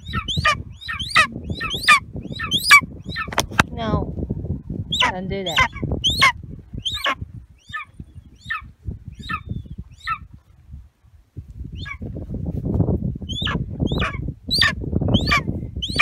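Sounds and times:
eagle calling: 0:00.0 - 0:03.6, 0:04.8 - 0:10.3, 0:11.7 - 0:12.0, 0:13.2 - 0:16.0
low rumbling noise: 0:00.0 - 0:16.0.

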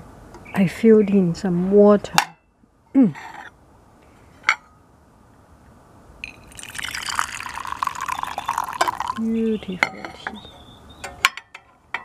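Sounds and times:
teapot knock and clink: 0:06.2 - 0:09.2, 0:09.8 - 0:10.4
tea pouring into glass cup: 0:06.2 - 0:10.2.

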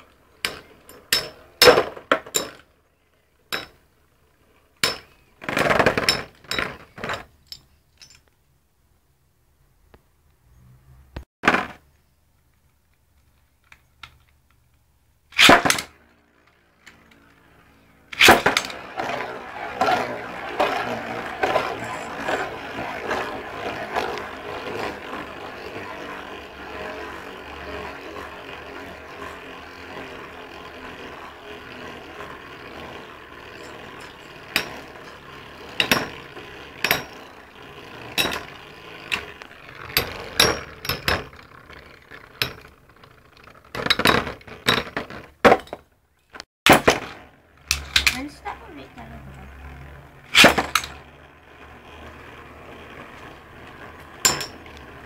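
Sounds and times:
spinning tops colliding clacks: 0:00.0 - 0:02.7, 0:15.3 - 0:17.4, 0:18.0 - 0:48.5, 0:49.3 - 0:55.0
spinning tops whirring and scraping: 0:00.0 - 0:08.3, 0:12.6 - 0:55.0.

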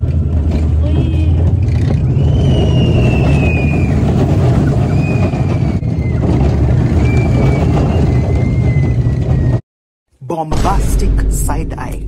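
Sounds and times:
roller coaster train on track: 0:00.0 - 0:09.6
faint high squeal: 0:04.7 - 0:09.6.

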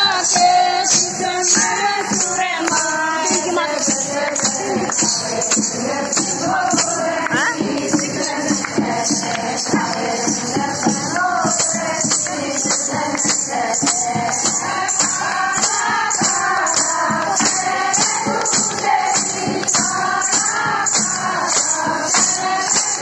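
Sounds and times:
jingling percussion beat: 0:00.0 - 0:23.0
women singing folk song: 0:00.0 - 0:23.0.

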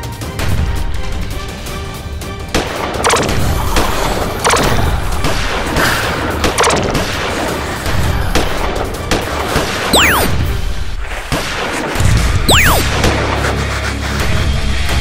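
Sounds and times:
background music: 0:00.0 - 0:09.2
blaster shots: 0:03.1 - 0:03.4, 0:04.5 - 0:04.8, 0:06.6 - 0:07.0, 0:10.0 - 0:10.4, 0:12.5 - 0:12.9.

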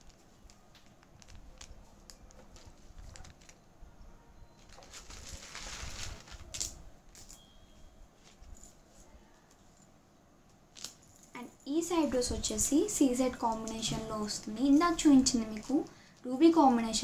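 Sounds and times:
rustle of handling: 0:00.0 - 0:11.4.

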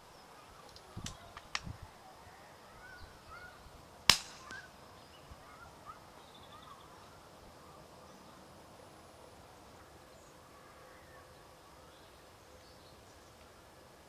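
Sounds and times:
faint clicks: 0:00.6 - 0:01.7
suppressed rifle shot: 0:04.1 - 0:04.7.

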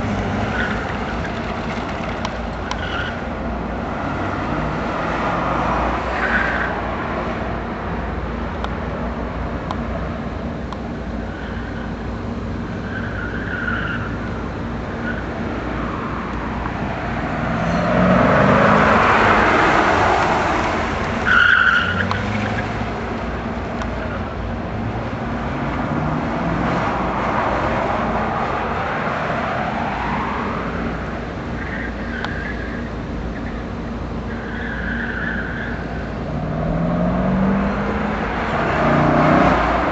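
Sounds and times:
car engine revving: 0:15.7 - 0:31.0, 0:34.9 - 0:39.9
tyres squealing: 0:21.2 - 0:22.8.

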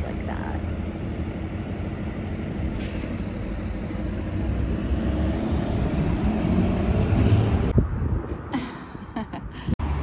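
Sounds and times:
vehicle passing: 0:03.8 - 0:08.5.

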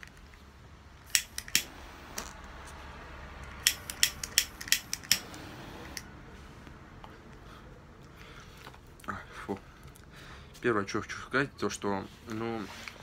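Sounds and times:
lighter clicking: 0:01.1 - 0:01.7, 0:03.6 - 0:06.1.

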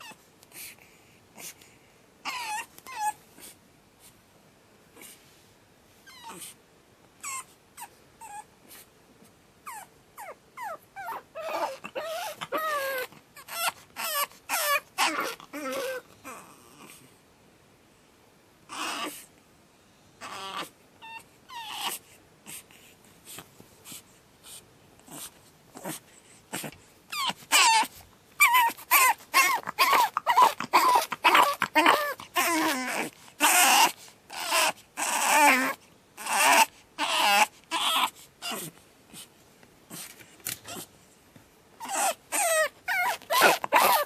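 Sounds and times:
puppy crying and whining: 0:00.0 - 0:00.7, 0:02.2 - 0:03.6, 0:06.0 - 0:06.6, 0:07.2 - 0:08.9, 0:09.6 - 0:17.0, 0:18.7 - 0:19.3, 0:20.2 - 0:22.6, 0:25.1 - 0:38.8, 0:39.9 - 0:40.9, 0:41.8 - 0:44.0.

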